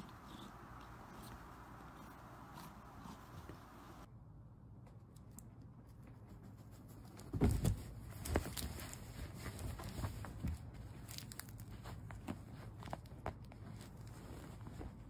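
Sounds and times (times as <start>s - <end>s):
fabric rustling: 7.2s - 15.0s.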